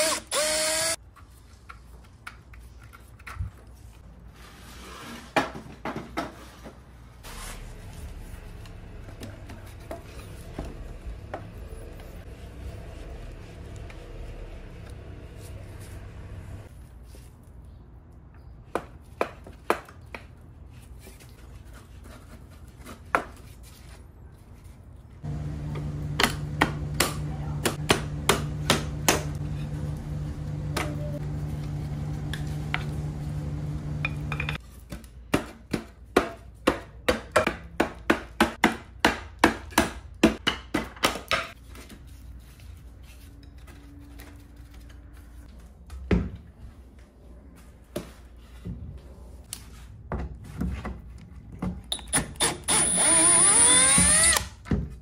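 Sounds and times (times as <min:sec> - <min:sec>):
machine hum: 0:25.2 - 0:34.6.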